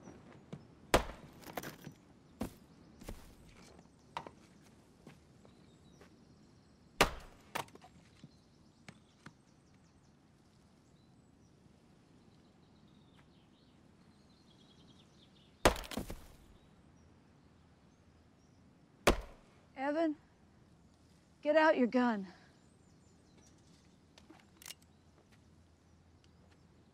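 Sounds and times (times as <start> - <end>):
axe chopping wood: 0.9 - 3.3, 7.0 - 7.8, 15.7 - 16.5, 19.1 - 19.4
wood pieces falling clicks: 15.7 - 16.4.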